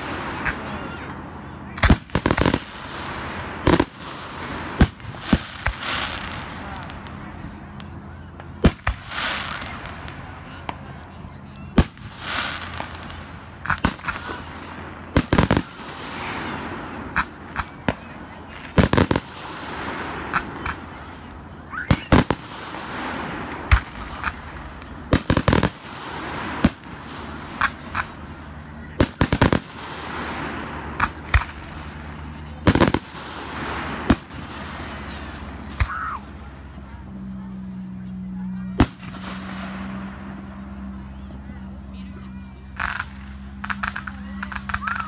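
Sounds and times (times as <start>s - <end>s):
fireworks crackling hiss: 0.0s - 10.9s, 11.8s - 36.4s
fireworks bangs: 0.0s - 36.6s, 38.6s - 41.4s, 42.3s - 45.0s.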